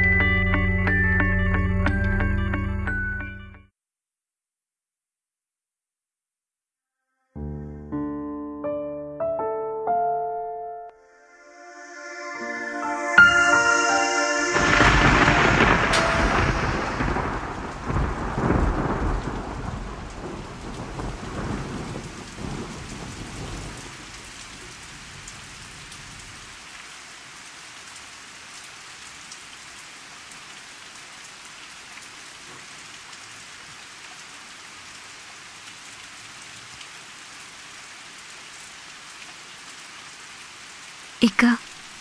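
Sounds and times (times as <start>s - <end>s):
steady rain: 11.6s - 42.0s
thunder rumbling: 14.4s - 24.3s.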